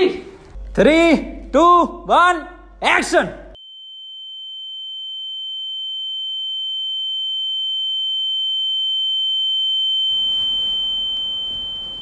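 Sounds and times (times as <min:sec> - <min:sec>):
fainter lower tone: 0:03.6 - 0:12.0
high-pitched electronic beep tone: 0:03.6 - 0:12.0
room noise: 0:10.1 - 0:12.0.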